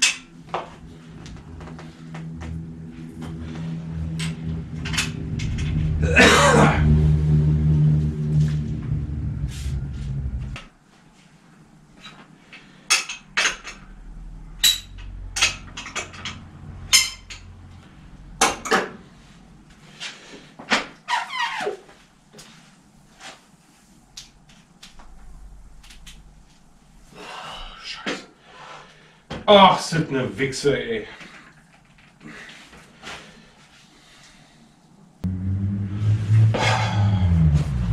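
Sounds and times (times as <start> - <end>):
steady low hum: 0.0 - 10.8, 11.6 - 20.1, 23.7 - 28.0, 35.0 - 37.9.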